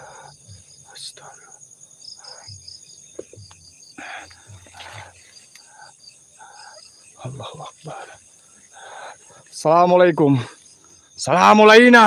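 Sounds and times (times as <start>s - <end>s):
crickets chirping: 0.0s - 12.0s.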